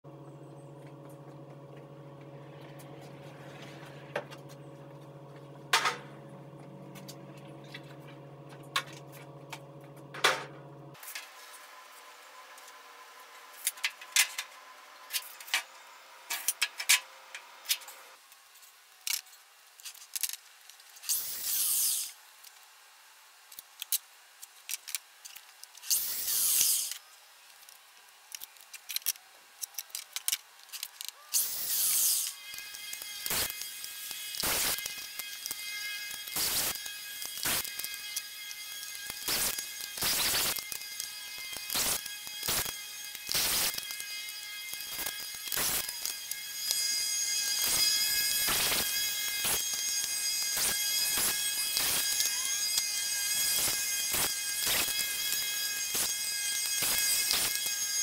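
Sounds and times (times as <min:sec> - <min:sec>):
steady hum: 0:00.1 - 0:11.0
rasping bursts: 0:31.3 - 0:58.0.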